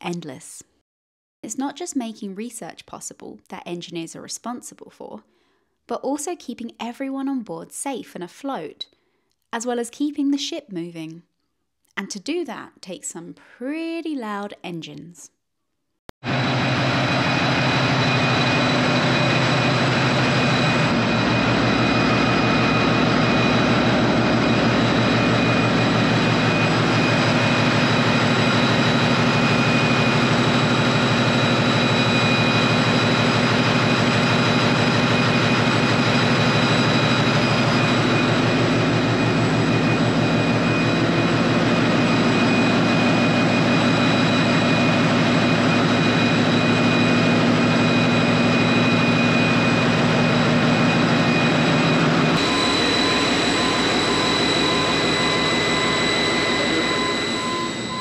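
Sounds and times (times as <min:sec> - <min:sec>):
high-pitched whines: 0:16.3 - 0:58.0
ship engines droning: 0:16.3 - 0:58.0.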